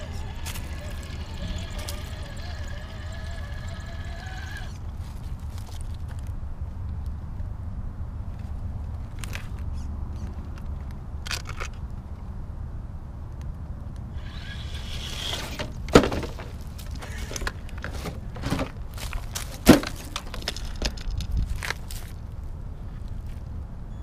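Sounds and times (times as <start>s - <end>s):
toy truck knocking and scraping: 0.0s - 6.2s, 14.2s - 22.2s.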